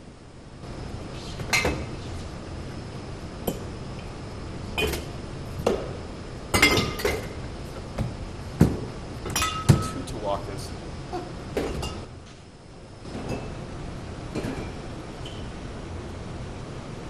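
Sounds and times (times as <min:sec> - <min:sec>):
low background hum: 0:00.0 - 0:17.0
glass bottles clinking: 0:04.8 - 0:05.1, 0:06.5 - 0:07.4, 0:09.2 - 0:10.1, 0:11.6 - 0:12.1.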